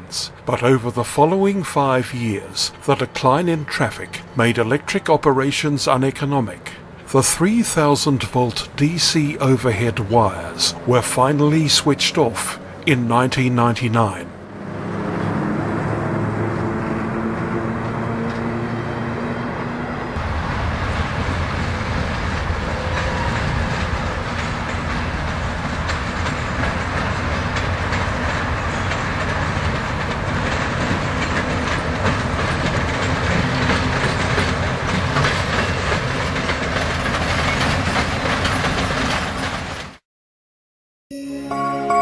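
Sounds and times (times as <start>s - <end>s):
freight train rolling past: 0.0s - 40.0s
passenger train passing: 0.0s - 40.0s
wheels clicking over rail joints: 21.2s - 40.0s.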